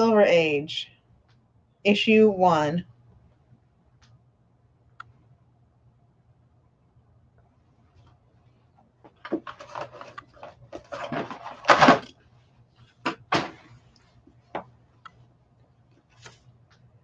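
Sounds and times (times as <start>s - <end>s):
cardboard scraping and rustling: 9.2s - 12.1s.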